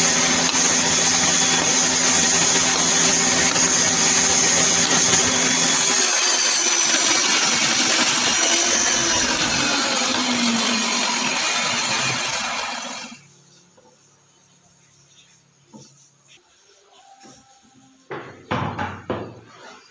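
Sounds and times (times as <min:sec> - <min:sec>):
table saw running: 0:00.0 - 0:13.2.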